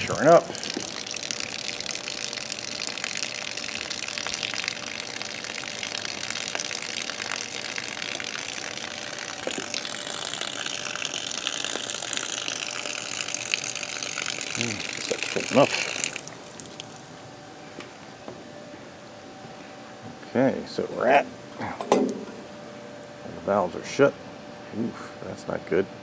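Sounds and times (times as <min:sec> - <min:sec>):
water rushing under pressure: 0:00.0 - 0:17.1.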